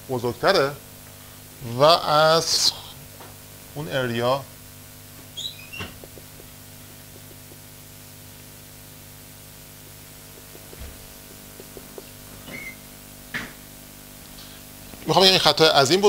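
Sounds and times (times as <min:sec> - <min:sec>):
electrical hum: 0:00.0 - 0:16.0
marker writing on whiteboard: 0:05.4 - 0:07.8, 0:10.3 - 0:12.8.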